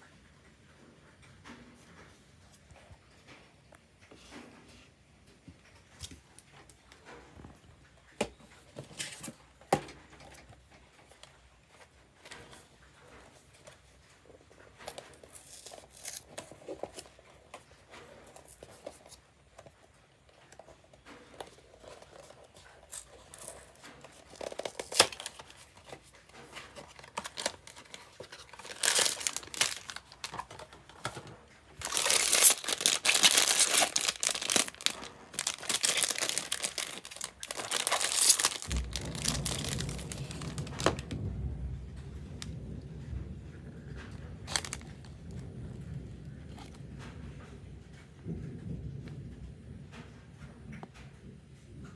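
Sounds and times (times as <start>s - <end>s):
cardboard box rustling: 14.8s - 19.8s, 20.5s - 41.1s, 44.5s - 44.9s
foil bag tearing and crinkling: 14.9s - 17.2s, 21.4s - 41.2s, 44.4s - 45.1s.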